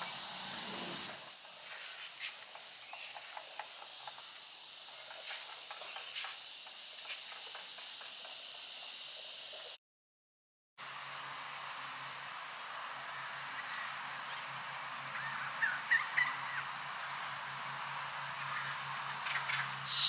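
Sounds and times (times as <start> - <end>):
paint roller crackling on concrete: 0.0 - 8.7
cicada drone: 0.0 - 9.8, 10.8 - 20.0.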